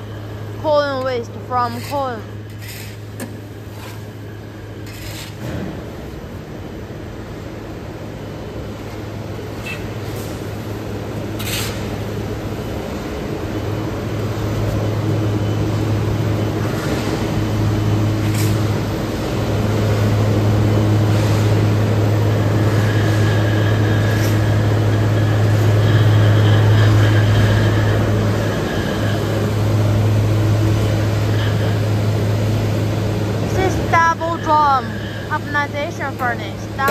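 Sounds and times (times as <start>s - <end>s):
machinery humming: 0.0s - 36.9s
thin high whine: 22.4s - 36.9s.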